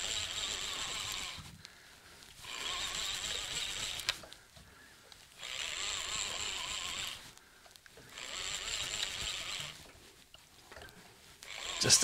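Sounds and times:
fishing reel whirring: 0.0s - 1.5s, 2.3s - 4.3s, 5.3s - 7.4s, 8.0s - 10.0s, 11.4s - 12.0s.

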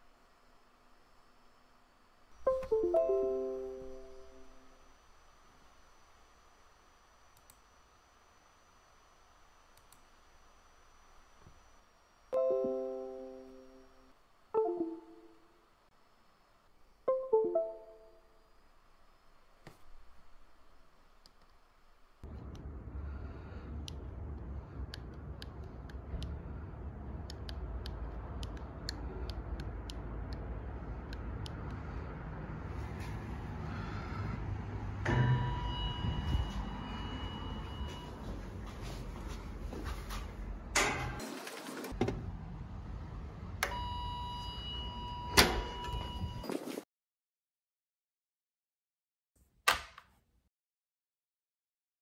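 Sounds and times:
faint high whine: 0.0s - 22.2s, 35.0s - 38.6s
low background rumble: 22.3s - 38.0s
computer mouse clicks: 27.2s - 30.4s.

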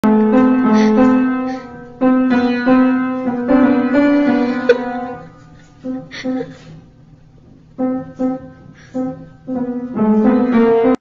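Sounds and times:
piano notes: 0.0s - 11.0s.

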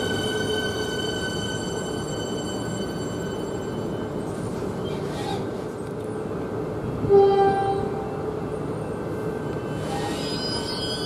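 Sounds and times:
train horn blast: 7.0s - 8.1s.

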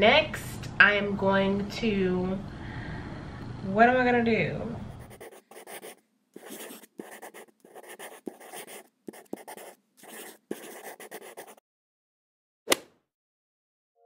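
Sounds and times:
pen scribbling on paper: 4.9s - 11.6s.

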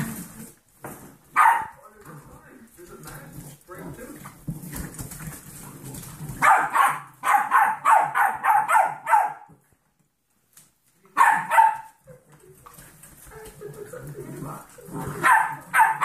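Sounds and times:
puppies barking: 1.3s - 1.8s, 6.3s - 9.6s, 11.2s - 12.0s, 15.0s - 16.0s.

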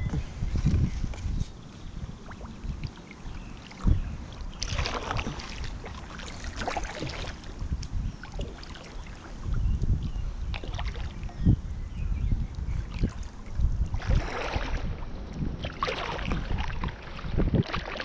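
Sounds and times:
wind rumble on microphone: 0.0s - 18.0s
paddle strokes splashing water: 2.2s - 9.6s, 10.5s - 11.3s, 12.8s - 18.0s.

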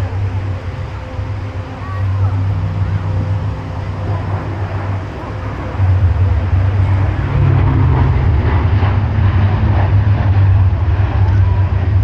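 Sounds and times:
aircraft engine drone: 0.0s - 12.0s.

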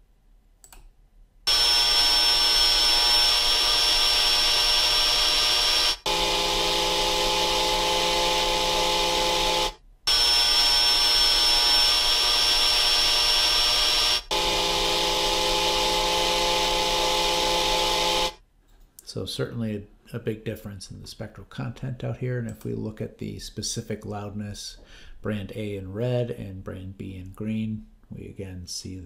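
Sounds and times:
vacuum cleaner high-pitched whine: 1.5s - 18.4s
vacuum cleaner low hum: 1.5s - 18.4s.

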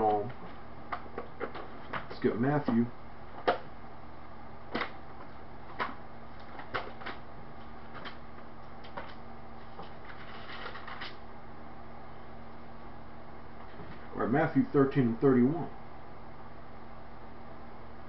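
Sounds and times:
pages being turned: 8.8s - 11.2s.

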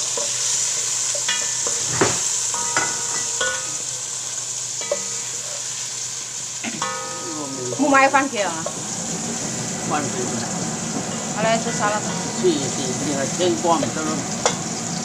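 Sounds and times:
aromatics sizzling in hot oil: 0.0s - 15.0s
spoon knocking against pot: 1.2s - 3.7s, 14.4s - 14.6s.

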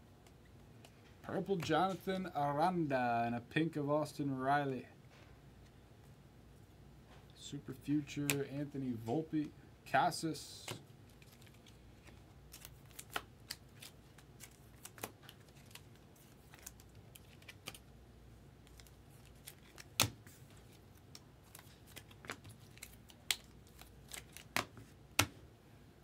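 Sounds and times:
cards clicking and tapping: 21.1s - 25.4s.

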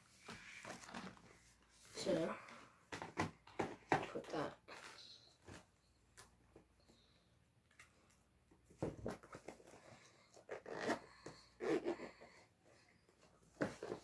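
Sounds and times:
zipper being pulled shut: 10.6s - 12.0s.

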